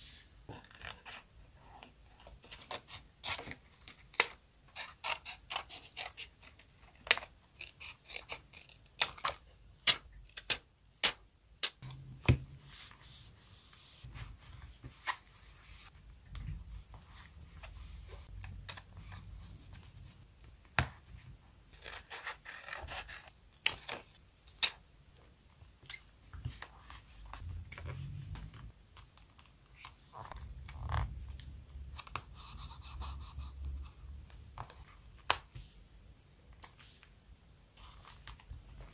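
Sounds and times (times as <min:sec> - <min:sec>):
scissors snipping paper: 0:02.6 - 0:11.8.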